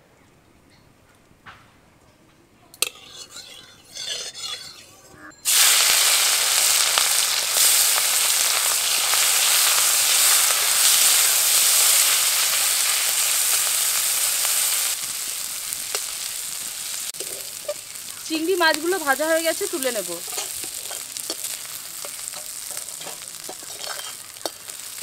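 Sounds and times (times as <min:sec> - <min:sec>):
shrimp sizzling in hot oil: 0:05.4 - 0:25.0.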